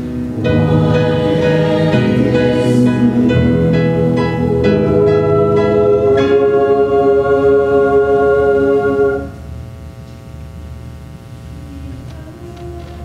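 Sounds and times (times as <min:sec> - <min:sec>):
choir singing sustained chords: 0:00.0 - 0:09.5
hall reverberation: 0:00.0 - 0:09.5
low hum: 0:00.0 - 0:13.0.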